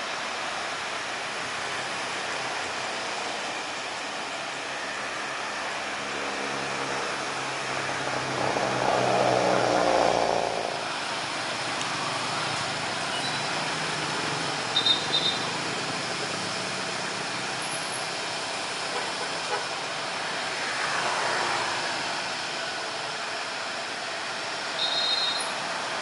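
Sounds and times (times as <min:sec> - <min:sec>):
road traffic: 0:00.0 - 0:26.0
vehicle passing by: 0:06.0 - 0:11.2, 0:20.4 - 0:22.2
shrill trilled whistle blasts: 0:14.8 - 0:15.5, 0:24.8 - 0:25.6.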